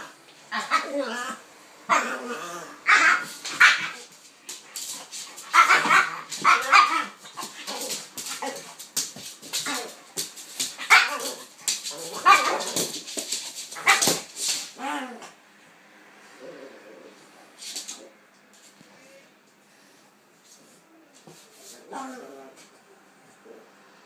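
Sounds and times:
dogs play barking: 0:00.0 - 0:15.4.

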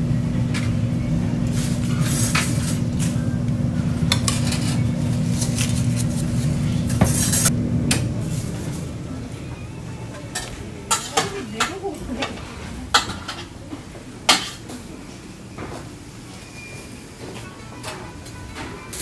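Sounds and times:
steady low hum: 0:00.0 - 0:16.3
metal utensils scraping griddle pan: 0:04.1 - 0:07.5.

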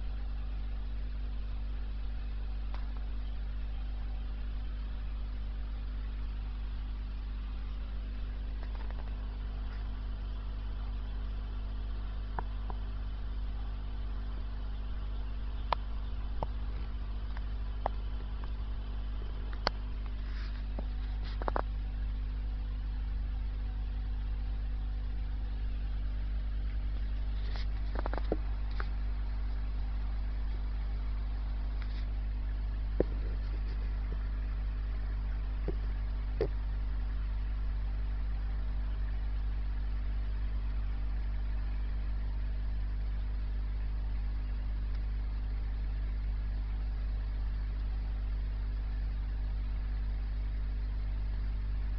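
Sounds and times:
aquarium filter humming: 0:00.0 - 0:51.9
faint sharp clicks: 0:19.5 - 0:21.8.

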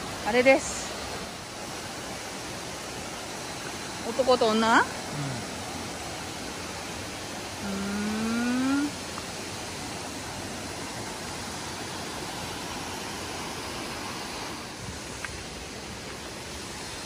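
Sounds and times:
waterfall rushing: 0:00.0 - 0:17.0
person humming: 0:05.1 - 0:05.6, 0:07.6 - 0:09.0.

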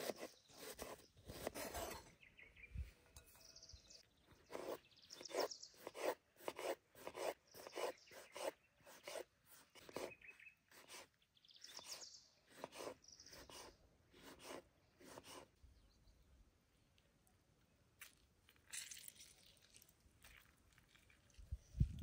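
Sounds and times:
birds chirping: 0:00.1 - 0:06.0, 0:07.4 - 0:09.2, 0:09.8 - 0:13.8.

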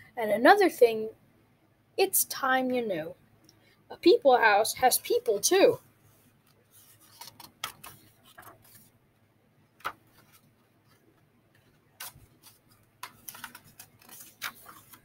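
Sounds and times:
paper rustling: 0:06.1 - 0:08.9, 0:09.8 - 0:15.0
book pages turning: 0:06.4 - 0:08.9, 0:09.8 - 0:15.0.

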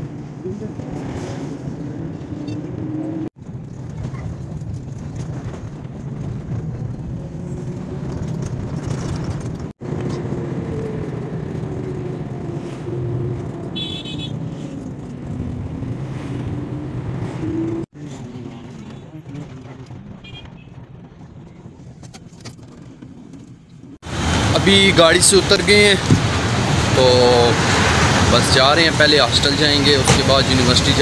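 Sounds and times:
vehicle engine and road rumble: 0:00.0 - 0:31.0
high-pitched horn toot: 0:13.8 - 0:14.4.

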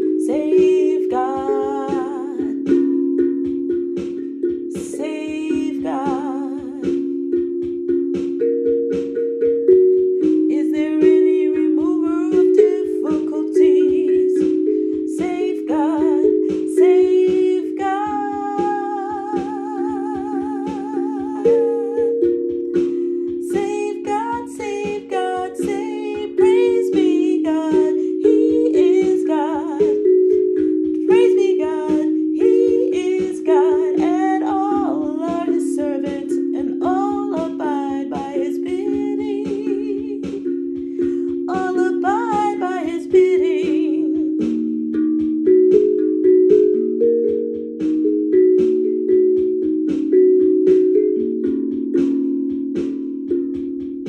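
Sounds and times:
woman's wordless singing: 0:00.0 - 0:03.2, 0:04.6 - 0:07.4, 0:10.2 - 0:44.6
steel tongue drum melody: 0:00.0 - 0:54.0.

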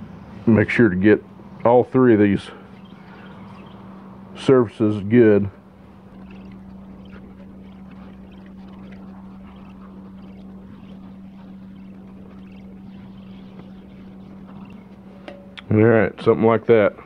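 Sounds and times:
steady low hum: 0:00.0 - 0:17.0
gloved hand rubbing and rustling: 0:05.6 - 0:15.3.

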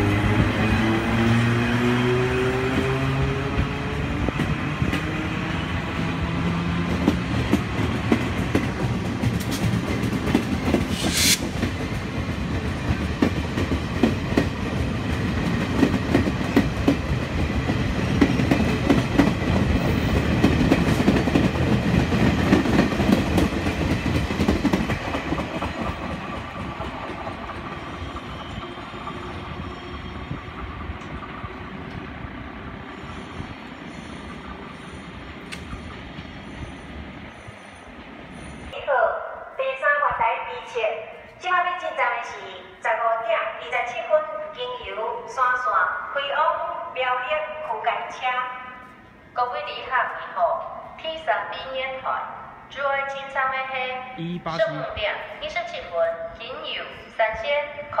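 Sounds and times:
brief hiss: 0:10.9 - 0:11.6.

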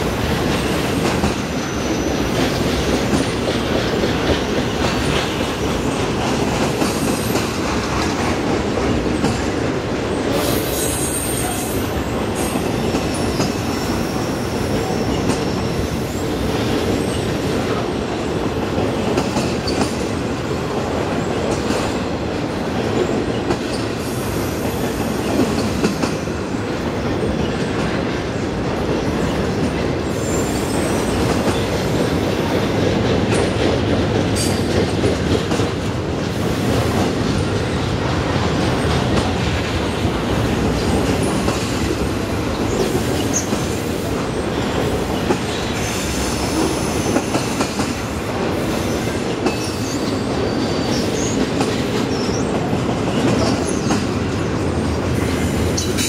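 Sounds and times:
freight train wheels rumbling: 0:00.0 - 0:56.0
train wheel squeals: 0:00.4 - 0:03.4, 0:06.7 - 0:07.6, 0:10.2 - 0:17.8, 0:19.4 - 0:20.0, 0:23.0 - 0:26.4, 0:29.0 - 0:32.4, 0:42.5 - 0:54.2, 0:55.2 - 0:56.0.

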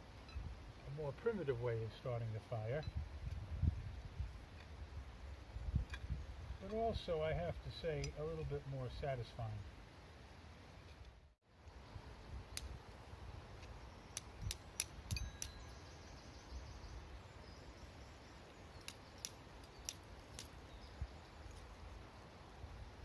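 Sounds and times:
flint striking steel clicks: 0:12.5 - 0:12.8, 0:13.6 - 0:15.7, 0:18.5 - 0:20.6.

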